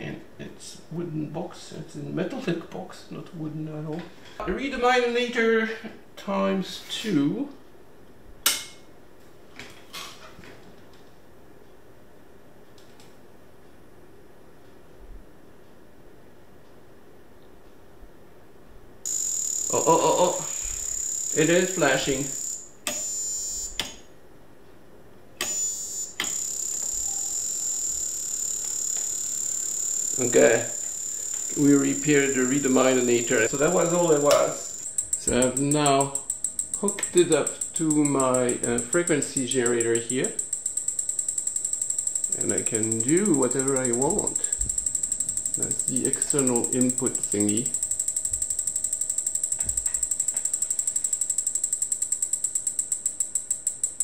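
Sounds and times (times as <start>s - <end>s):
stroboscope high-pitched whine: 19.1s - 23.7s, 25.4s - 54.0s
switch click: 23.8s - 24.0s.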